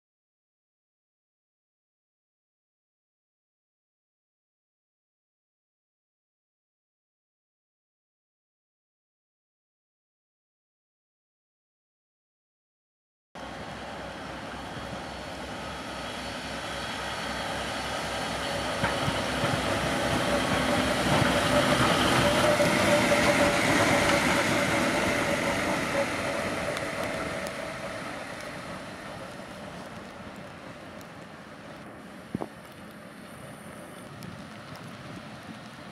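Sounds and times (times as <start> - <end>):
diesel locomotive passing: 13.4 - 35.9.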